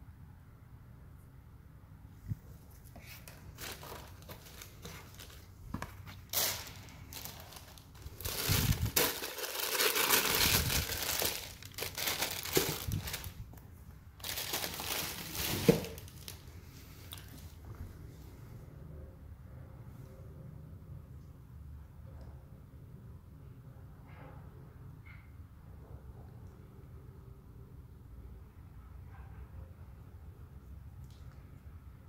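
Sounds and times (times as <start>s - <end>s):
tissue paper crinkling and rustling: 2.6s - 13.6s, 14.2s - 16.5s.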